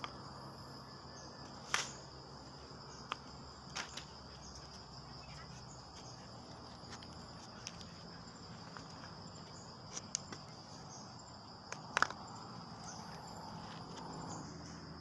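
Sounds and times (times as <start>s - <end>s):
high-pitched insect chorus: 0.0s - 15.0s
slingshot laid on wooden stump: 11.7s - 12.3s.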